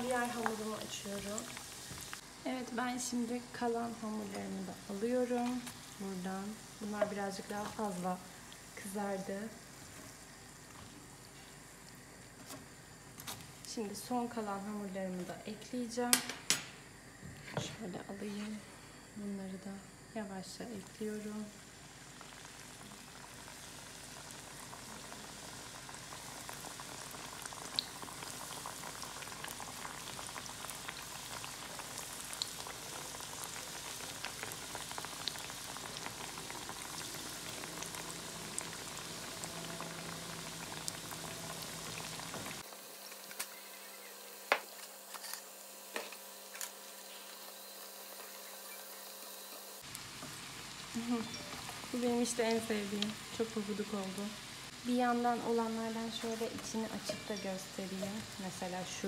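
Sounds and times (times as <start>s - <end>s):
oil crackling and popping: 0.0s - 2.3s, 4.2s - 8.8s, 21.6s - 43.6s
dough deep-frying in oil: 0.0s - 15.4s, 19.9s - 59.0s.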